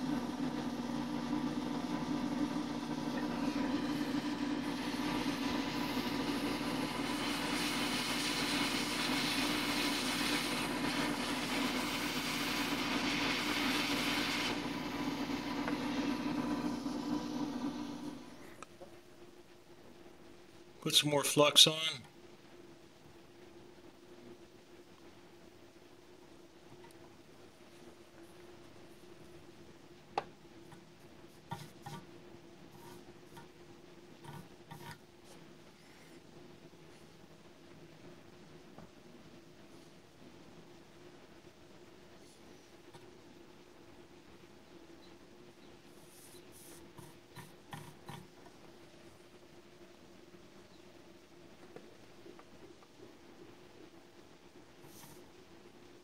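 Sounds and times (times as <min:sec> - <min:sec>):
hot air station fan blowing: 0:00.0 - 0:18.8
faint steady hum: 0:00.0 - 0:56.0.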